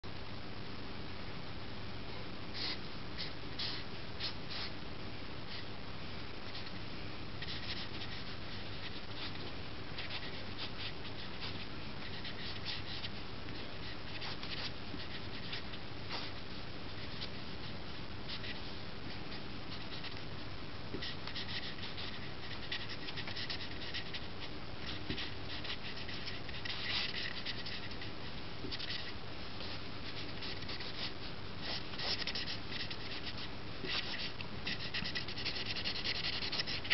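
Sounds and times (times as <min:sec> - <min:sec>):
low hum and hiss: 0:00.0 - 0:36.9
marker scratching on paper: 0:07.4 - 0:13.1, 0:13.8 - 0:17.4, 0:21.0 - 0:36.9.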